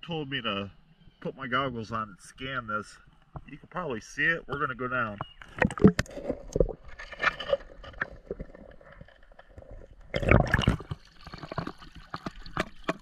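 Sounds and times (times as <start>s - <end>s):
underwater water sloshing: 4.6s - 13.0s.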